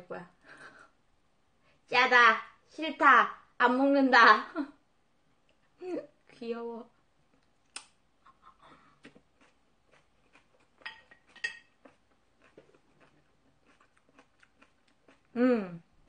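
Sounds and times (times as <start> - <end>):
utensils clinking on dishes: 10.8 - 11.8.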